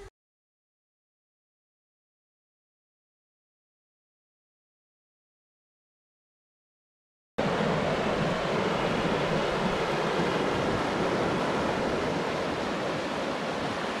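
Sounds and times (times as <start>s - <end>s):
river water rushing: 7.4s - 14.0s.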